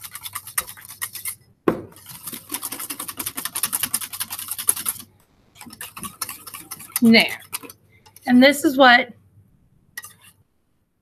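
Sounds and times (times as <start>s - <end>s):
whisk clinking against metal bowl: 0.0s - 1.4s, 2.0s - 5.0s, 5.6s - 8.2s, 10.0s - 10.4s.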